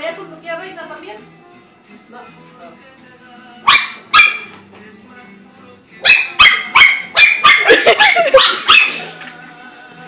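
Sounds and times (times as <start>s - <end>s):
small dog barking: 3.7s - 4.5s, 6.0s - 9.0s.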